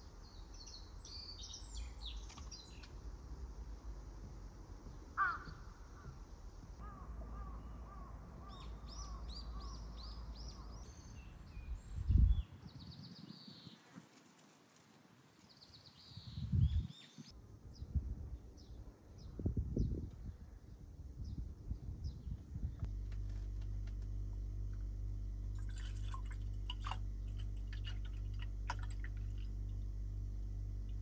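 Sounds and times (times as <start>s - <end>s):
small birds chirping: 0.1s - 3.0s, 6.8s - 14.5s, 15.4s - 17.3s.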